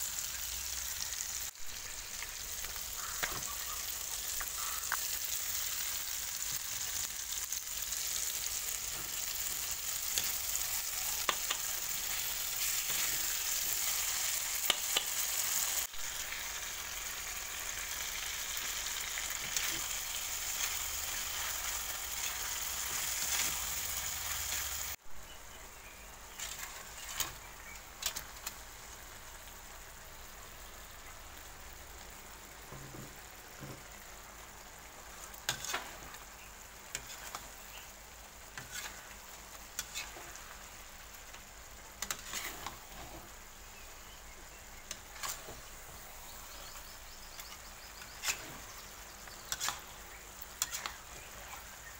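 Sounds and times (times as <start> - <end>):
sauce simmering: 0.0 - 25.0, 27.6 - 51.9
vegetables sizzling in hot oil: 0.0 - 51.9
metal spatula scraping wok: 8.4 - 15.8, 26.4 - 27.4, 35.4 - 36.1, 36.9 - 37.5, 38.6 - 39.1, 39.8 - 40.5, 42.0 - 43.4, 44.9 - 50.0, 50.6 - 51.8.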